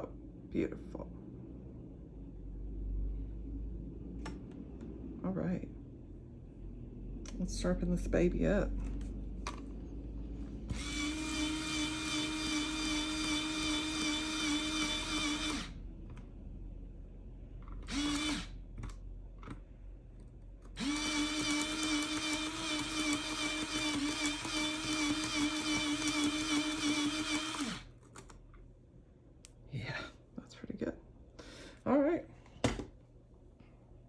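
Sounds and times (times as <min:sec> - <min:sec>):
electric pencil sharpener whine: 0:10.7 - 0:15.8, 0:17.8 - 0:18.6, 0:20.8 - 0:27.9.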